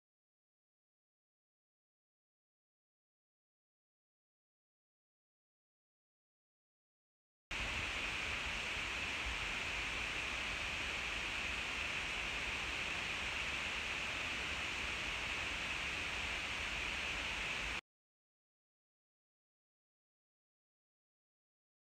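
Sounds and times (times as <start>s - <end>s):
steady hiss: 7.5s - 17.8s.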